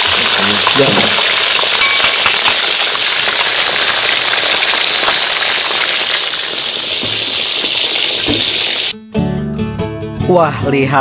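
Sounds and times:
oil sizzling and crackling: 0.0s - 9.0s.

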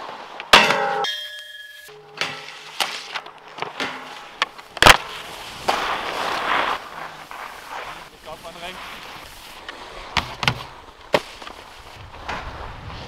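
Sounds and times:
skis sliding over snow: 0.0s - 0.5s, 2.4s - 13.0s
skis clanging on steel rail: 0.4s - 6.2s
rail ringing: 0.5s - 2.8s
sharp knocks and scrapes: 2.1s - 6.8s.

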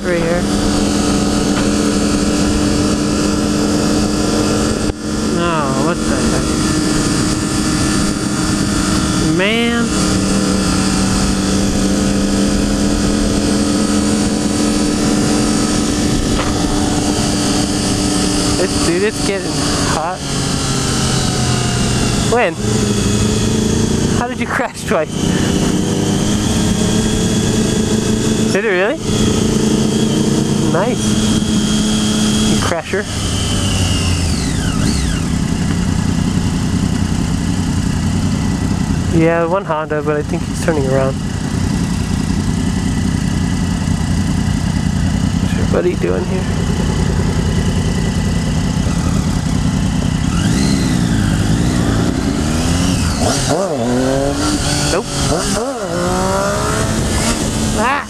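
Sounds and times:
wind rushing over microphone: 0.0s - 24.2s, 46.3s - 58.0s
motorcycle engine running: 0.0s - 58.0s
wind rumbling on microphone: 10.0s - 20.0s.

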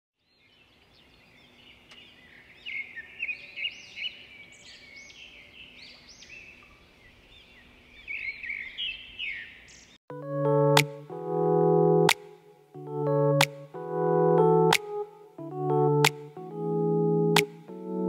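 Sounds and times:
small birds chirping: 0.2s - 10.0s.

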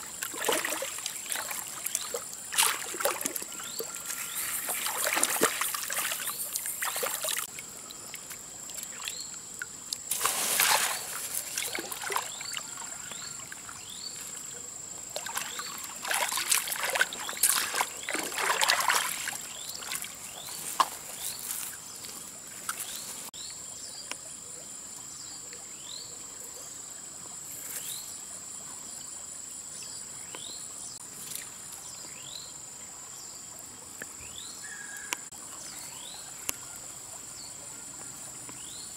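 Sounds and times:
muddy water splashing: 0.0s - 23.3s.

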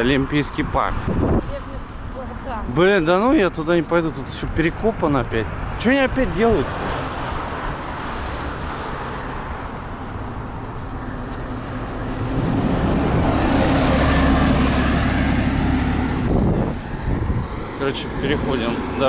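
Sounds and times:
road traffic noise: 0.0s - 19.0s
bus engine droning: 7.3s - 19.0s.

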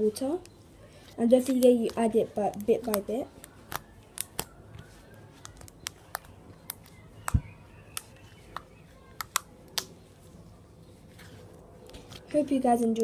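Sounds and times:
slime clicking and popping: 1.5s - 4.6s, 5.4s - 10.0s.

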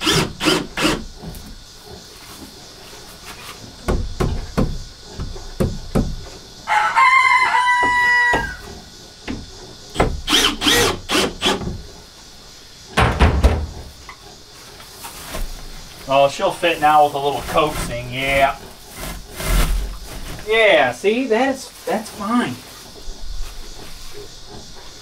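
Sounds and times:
knocks and thumps: 3.3s - 6.4s, 7.8s - 10.4s, 12.9s - 14.2s
rooster crowing: 6.6s - 8.7s.

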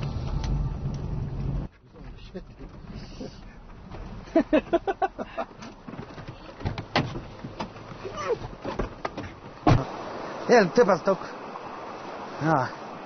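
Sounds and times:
van door clicks and knocks: 5.6s - 9.8s.

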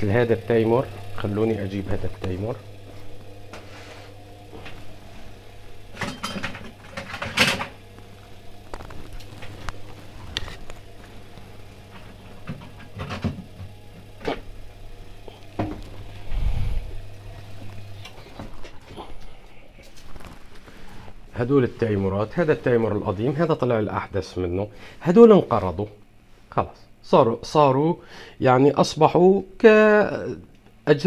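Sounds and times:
steady electrical hum: 0.0s - 31.0s
objects knocking and clattering: 5.9s - 7.8s, 12.0s - 14.4s.

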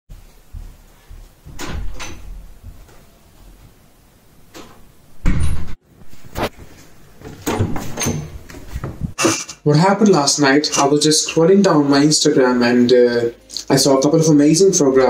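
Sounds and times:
wooden door shutting with thud: 1.6s - 2.4s, 4.6s - 5.8s, 7.4s - 8.4s.

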